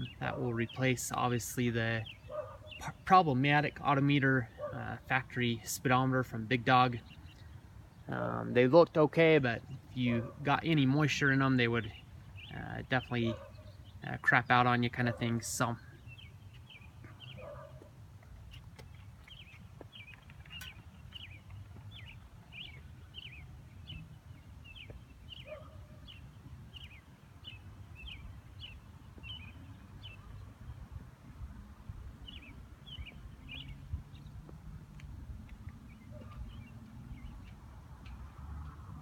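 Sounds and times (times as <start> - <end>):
small bird chirping: 18.4 - 30.4.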